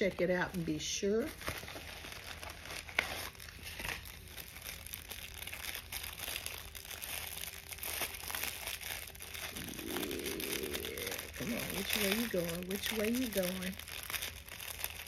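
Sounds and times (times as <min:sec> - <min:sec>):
packaging rustling and crinkling: 0:00.0 - 0:15.0.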